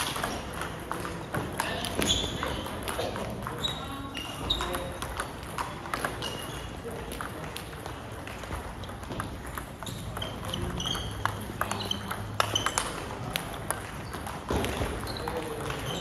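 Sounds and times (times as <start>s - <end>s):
table tennis ball clicking: 4.5s - 15.0s.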